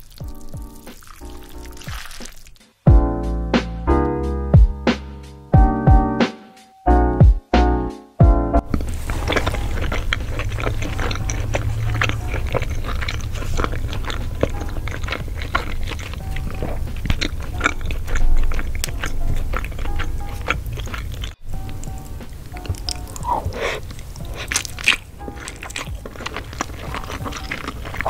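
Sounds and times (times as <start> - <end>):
chewing and mouth clicks: 0.0 - 2.7, 8.6 - 28.0
music: 0.0 - 28.0.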